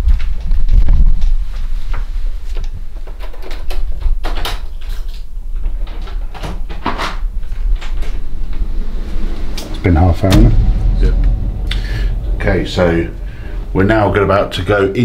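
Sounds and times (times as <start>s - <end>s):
steady low rumble: 7.3s - 15.0s.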